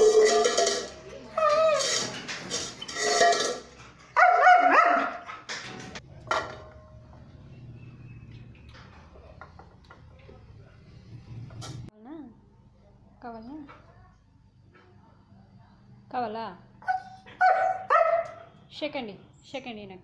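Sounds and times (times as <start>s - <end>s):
bowl clinking: 0.0s - 3.9s
dog pawing metal bowl on tile: 0.0s - 6.7s
dog whining bark: 4.2s - 5.4s, 16.8s - 18.5s.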